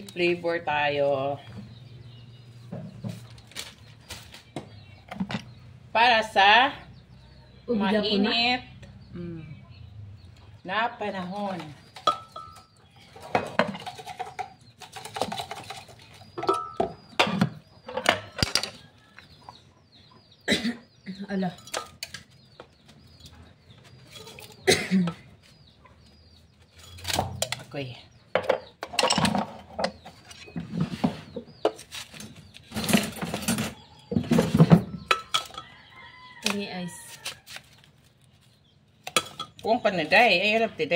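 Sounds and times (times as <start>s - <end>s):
chickens clucking: 8.3s - 27.4s.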